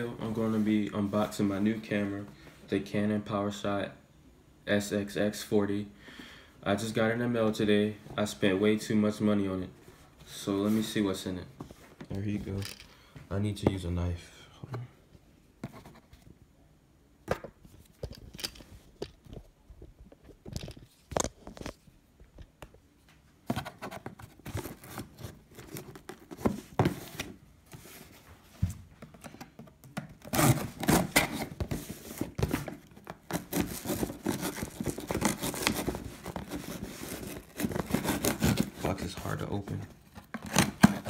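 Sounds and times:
knife cutting packing tape: 0:30.2 - 0:31.5
tearing tape and cardboard: 0:30.2 - 0:32.3, 0:33.1 - 0:39.0.

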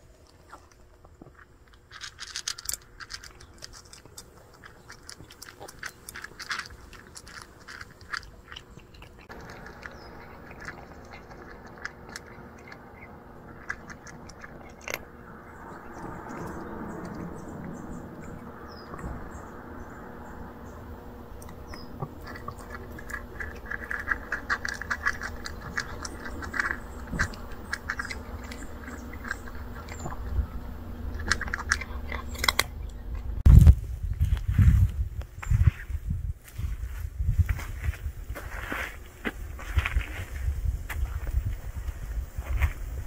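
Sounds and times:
cat crunching dry kibble: 0:00.0 - 0:33.6.

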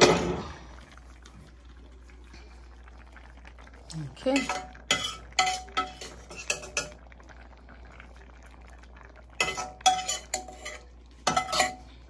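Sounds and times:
metal spoon clinking against pan: 0:04.4 - 0:06.9, 0:09.4 - 0:11.8.

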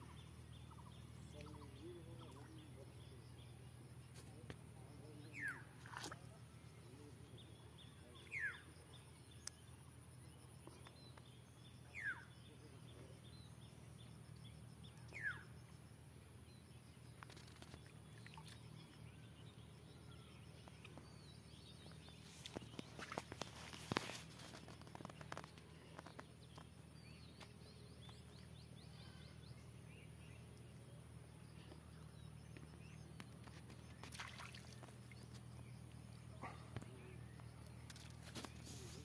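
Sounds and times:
bird calling: 0:15.1 - 0:15.5.

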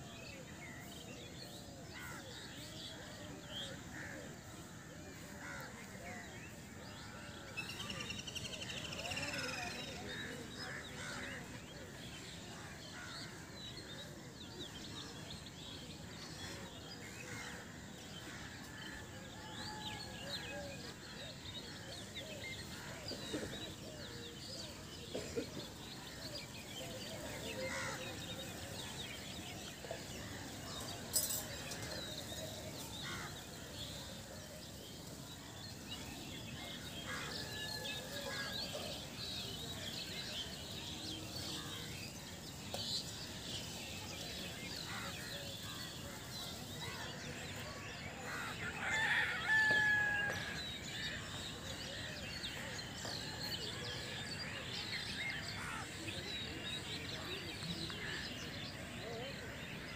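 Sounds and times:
small birds chirping: 0:22.0 - 0:48.8.

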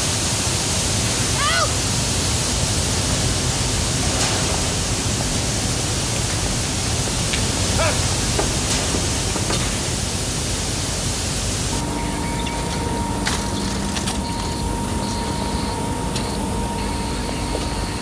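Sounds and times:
grain pouring with rushing hiss: 0:00.0 - 0:11.8.

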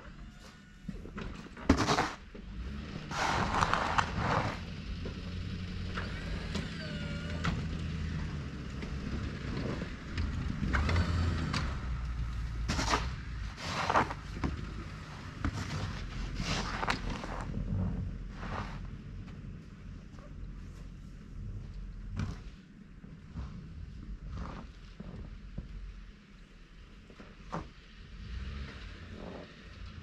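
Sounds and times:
pickup truck engine running: 0:02.2 - 0:24.2.

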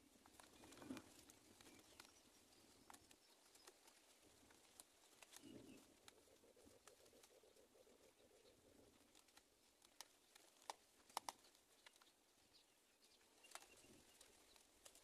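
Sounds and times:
faint clicks and taps: 0:00.2 - 0:07.4, 0:08.9 - 0:12.2.

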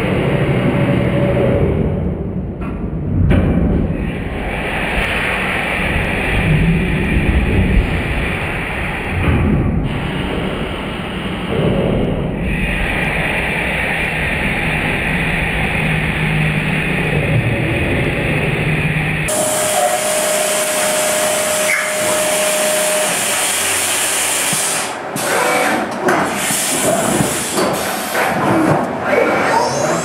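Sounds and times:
coolant spray hissing: 0:19.3 - 0:25.5, 0:26.3 - 0:28.2
milling machine cutting metal: 0:19.3 - 0:28.0.

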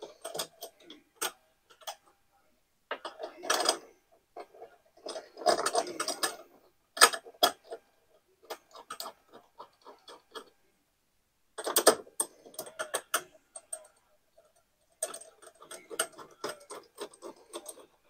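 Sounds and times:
metal parts clicking and clattering: 0:14.5 - 0:18.0.

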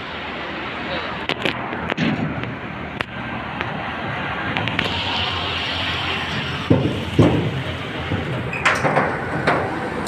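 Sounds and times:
steady rushing noise: 0:00.0 - 0:10.0
thumps on steel deck: 0:06.7 - 0:09.7.

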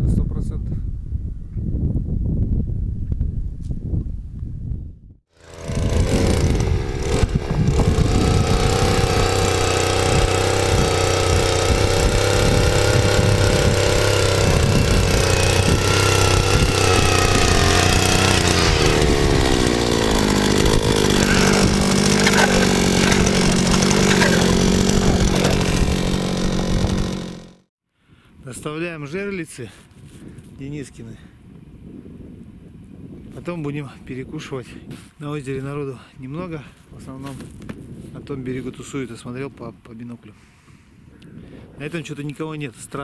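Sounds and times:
ice auger engine drilling: 0:05.4 - 0:27.7.

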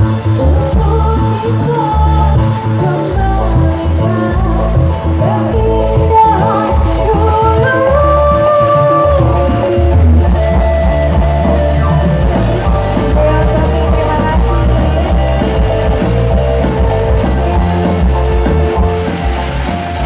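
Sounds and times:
loud band music heavy bass: 0:00.0 - 0:20.0
drum beat: 0:06.7 - 0:20.0.

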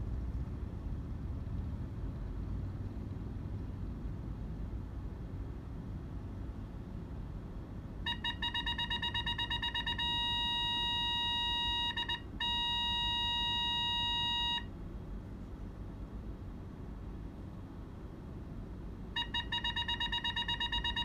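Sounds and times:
rapid high warning beeps: 0:08.1 - 0:14.7, 0:19.2 - 0:21.0.

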